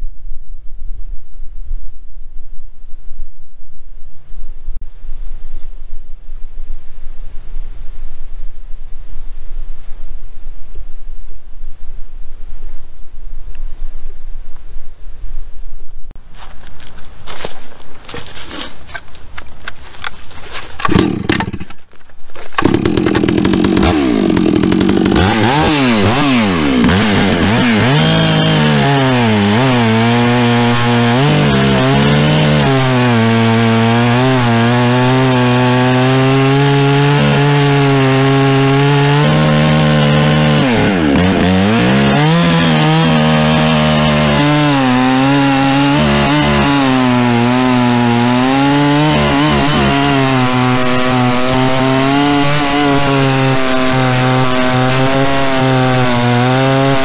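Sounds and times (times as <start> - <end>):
chain rasping through wood: 16.4 - 57.0
chainsaw engine at full throttle: 20.8 - 21.6, 22.6 - 57.0.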